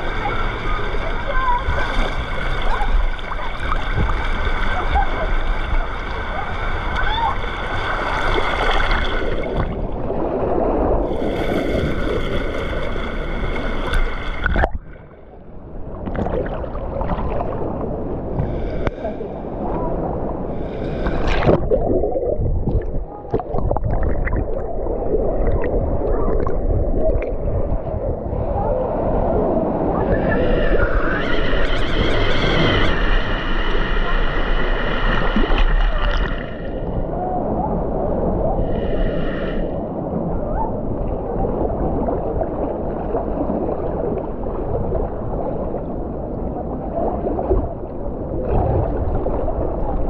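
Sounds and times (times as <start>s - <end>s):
water splashing: 0.0s - 15.2s, 15.8s - 28.3s, 29.8s - 37.1s
muffled underwater gurgling: 0.0s - 50.0s
rushing churning water: 0.0s - 50.0s.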